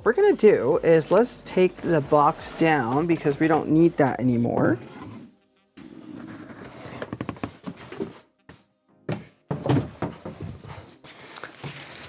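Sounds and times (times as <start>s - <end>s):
background music: 0.0s - 12.0s
thunks and knocks on table: 9.1s - 10.5s.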